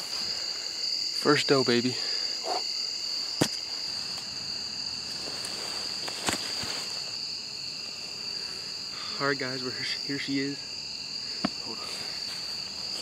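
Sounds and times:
insect chorus: 0.0 - 13.0.

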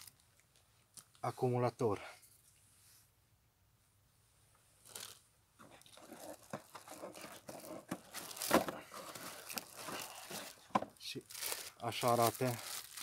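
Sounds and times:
cardboard packaging rustling: 4.8 - 13.0
cardboard crunch: 4.9 - 13.0.

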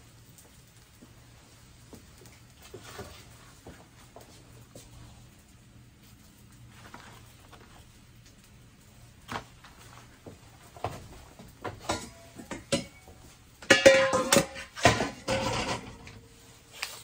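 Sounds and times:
metal mixing bowls clattering: 11.6 - 16.4.

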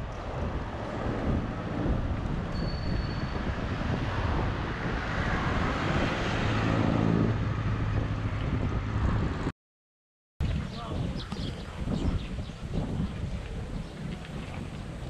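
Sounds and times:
low engine hum: 0.0 - 9.5
vehicles passing: 0.0 - 9.5.

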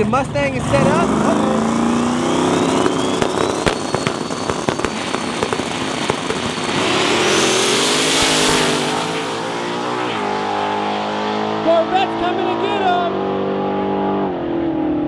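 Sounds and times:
car engines revving and accelerating: 0.0 - 15.0
exhaust pops and crackles: 2.3 - 9.2.

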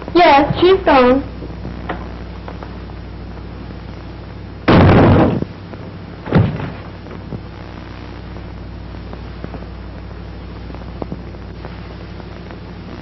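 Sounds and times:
film soundtrack hum and hiss: 0.0 - 13.0
loud crash: 4.7 - 5.5, 6.3 - 6.9
thump: 6.3 - 6.9.

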